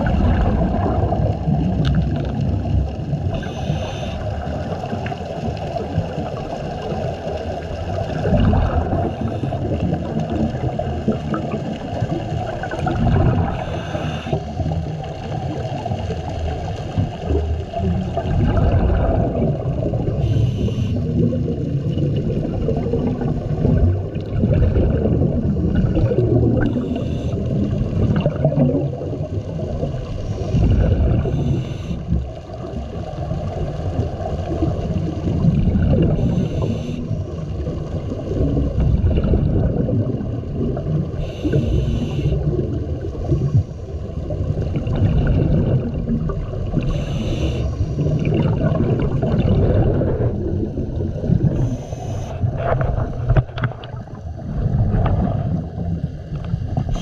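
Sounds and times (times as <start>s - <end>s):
underwater bubbling wash: 0.0s - 57.0s
regulator breathing hiss: 3.3s - 4.3s, 13.5s - 14.6s, 20.2s - 21.0s, 26.7s - 27.5s, 30.2s - 32.2s, 36.2s - 37.2s, 41.2s - 42.5s, 46.8s - 48.1s, 51.5s - 52.5s.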